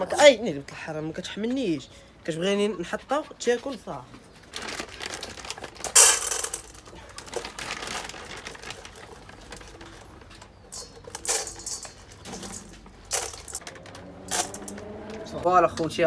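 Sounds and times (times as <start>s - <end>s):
plastic bag rustling: 4.3s - 15.1s
kibble rattling into steel bowl: 5.5s - 15.1s.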